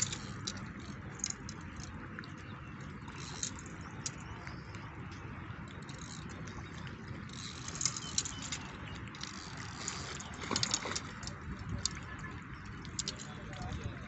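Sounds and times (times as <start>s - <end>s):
fishing reel clicks: 0.0s - 1.9s, 3.1s - 4.2s, 5.8s - 6.4s, 7.3s - 12.0s
fish splashing: 5.8s - 13.6s.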